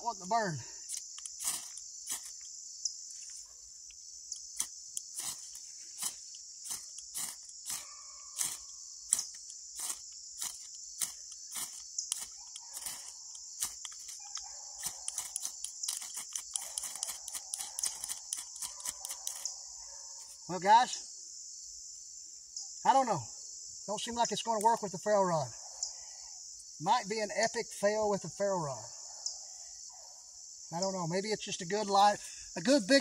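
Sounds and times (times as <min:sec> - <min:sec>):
ferro rod scraped with striker: 0:00.9 - 0:02.5, 0:04.4 - 0:19.6.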